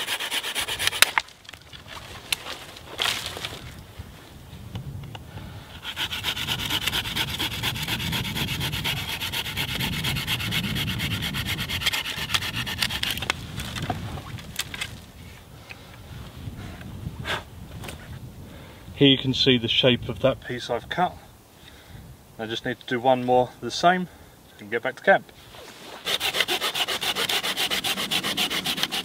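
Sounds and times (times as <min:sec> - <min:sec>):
saw cutting through branch: 0:00.0 - 0:01.3, 0:05.8 - 0:13.8, 0:25.8 - 0:29.0
rustling: 0:00.7 - 0:04.3, 0:25.3 - 0:26.8.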